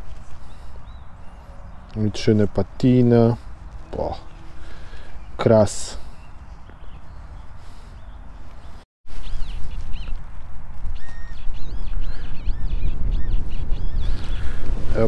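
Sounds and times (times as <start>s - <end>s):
high bird calls: 0.4s - 10.2s, 10.9s - 15.0s
wind buffeting microphone: 6.0s - 15.0s.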